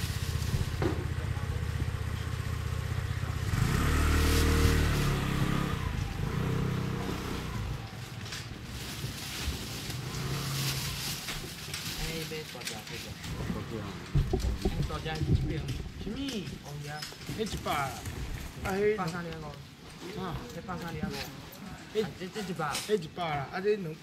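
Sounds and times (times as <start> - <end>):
vehicle engine running: 0.0 - 12.3.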